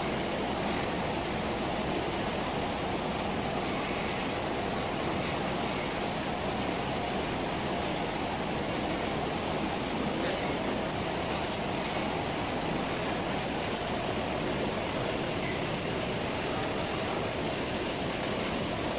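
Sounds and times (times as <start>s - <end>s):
printer machine running: 0.0s - 18.9s.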